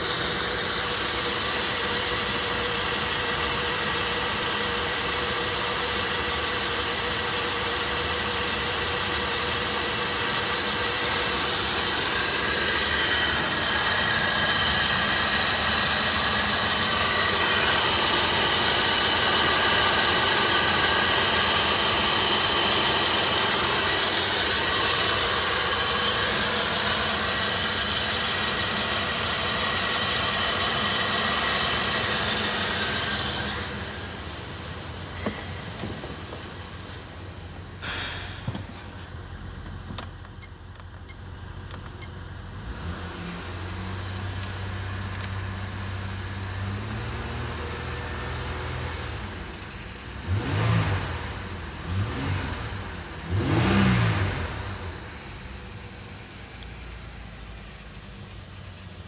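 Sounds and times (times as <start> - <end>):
car engine idling: 0.0 - 59.0.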